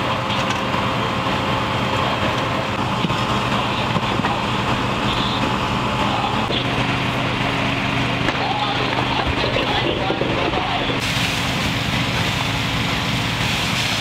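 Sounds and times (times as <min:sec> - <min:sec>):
broad rush of noise: 0:00.0 - 0:14.0
fire engine motor humming: 0:00.0 - 0:14.0.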